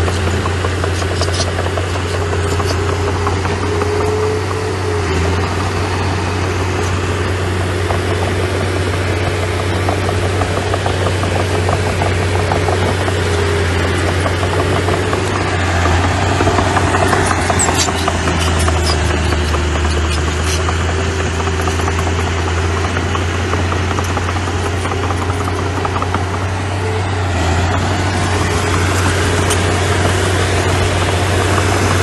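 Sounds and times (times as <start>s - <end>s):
earthmoving machine engine running: 0.0s - 32.0s.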